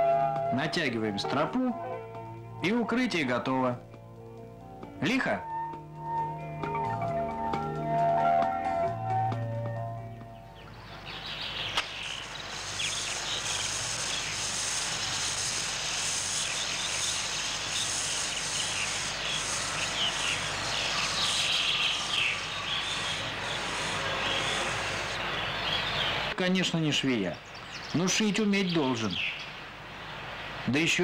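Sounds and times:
birds chirping: 6.2 - 31.0
steady hiss: 11.1 - 31.0
sharp click: 11.7 - 12.0
pulsing insect buzz: 11.9 - 25.7.

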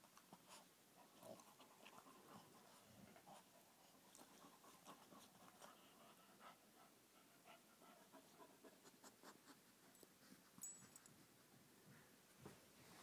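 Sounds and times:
faint scratchy rustling: 8.2 - 13.0.

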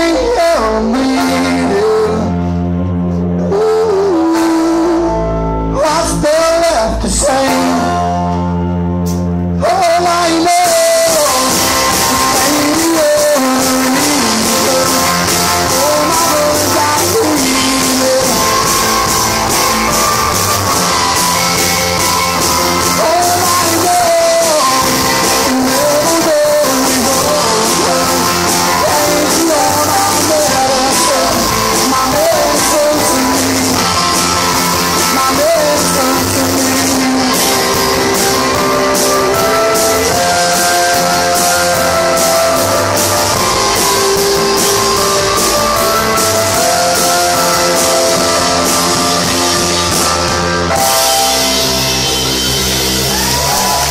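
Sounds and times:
man singing: 0.0 - 8.6, 9.5 - 51.8
live rock band playing: 0.0 - 53.9.

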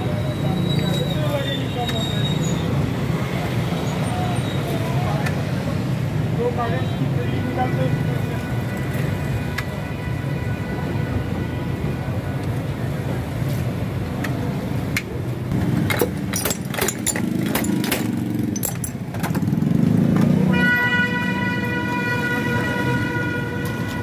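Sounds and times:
traffic rumble: 0.0 - 24.0
glass bottles clinking: 15.9 - 19.3
vehicle horn: 20.4 - 24.0.

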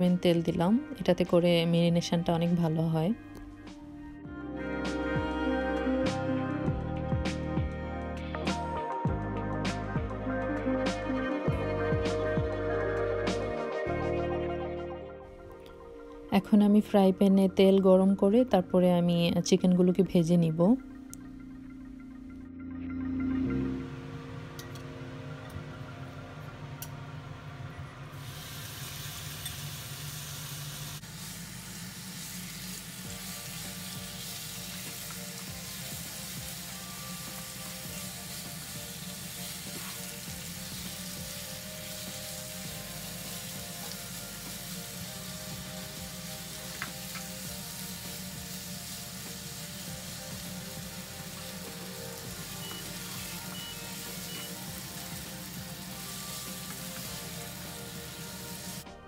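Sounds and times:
chicken sizzling in oil: 28.1 - 58.9.

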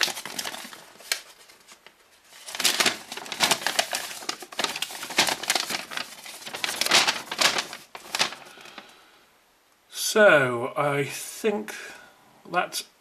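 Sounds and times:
paper rustling and crinkling: 0.0 - 8.9.

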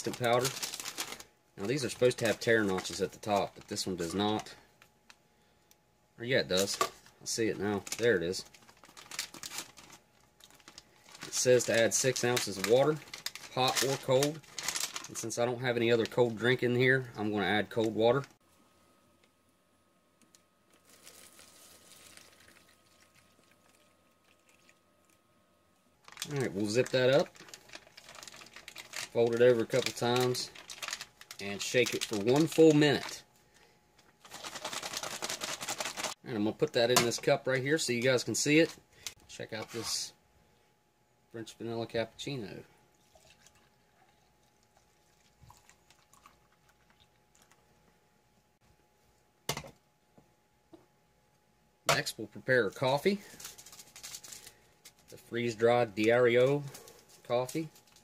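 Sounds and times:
pouch crinkling: 0.0 - 3.6, 7.7 - 16.1, 20.7 - 24.7, 26.0 - 33.2, 34.2 - 36.2, 53.3 - 55.2
water pouring into a pouch: 20.8 - 25.2, 43.0 - 47.6.

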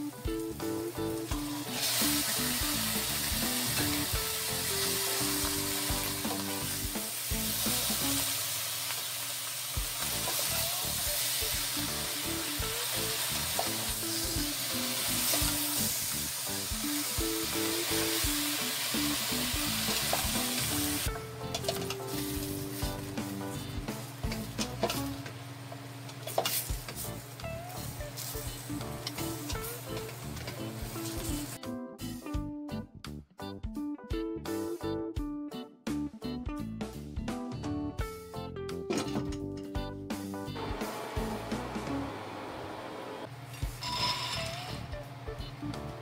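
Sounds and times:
food sizzling in hot oil: 0.0 - 21.1, 21.8 - 25.2, 26.2 - 31.6, 43.6 - 44.8.

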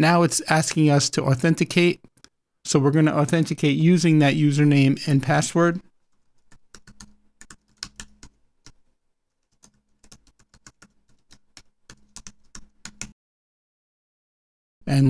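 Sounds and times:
typing on computer keyboard: 6.0 - 8.8, 9.4 - 13.1.

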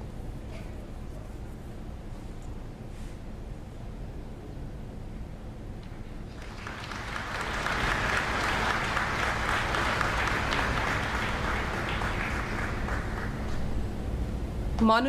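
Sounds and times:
audience applauding: 6.3 - 13.8.

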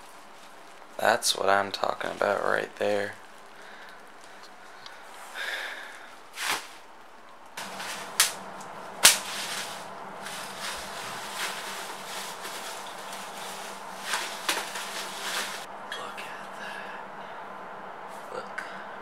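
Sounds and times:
bubble wrap rustling: 0.0 - 1.0, 1.7 - 15.7
bubble wrap popping: 7.6 - 15.7.

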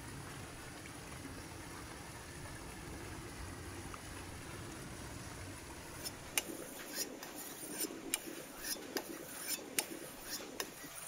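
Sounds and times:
outdoor background rush: 0.0 - 11.0
knife scraping on whetstone: 6.0 - 11.0.

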